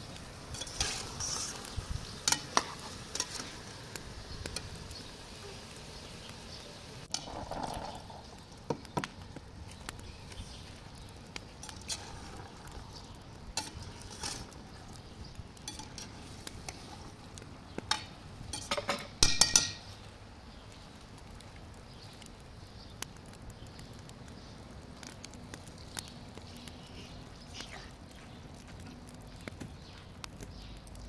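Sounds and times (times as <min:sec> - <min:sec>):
metal spoon scraping a pot: 0:00.5 - 0:01.6, 0:11.7 - 0:12.5, 0:13.6 - 0:14.5, 0:15.7 - 0:17.1
water pouring into a pot: 0:07.0 - 0:08.7, 0:11.7 - 0:13.2.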